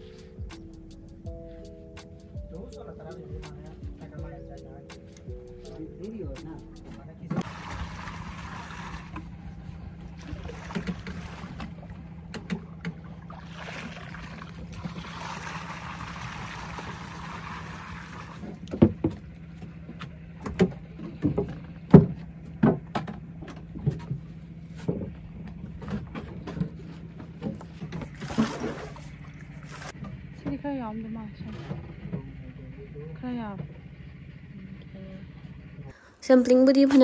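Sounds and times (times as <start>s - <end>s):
boat engine idling: 0.0s - 37.0s
water sloshing through a net: 7.4s - 19.9s, 25.8s - 30.0s.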